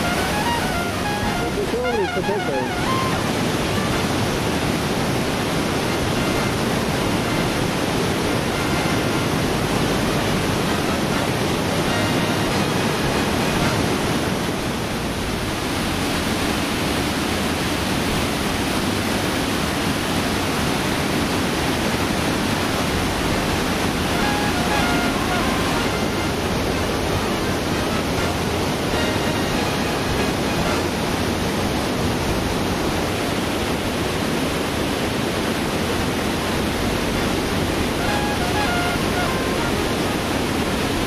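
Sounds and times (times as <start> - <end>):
stream rushing over rocks: 0.0 - 41.0.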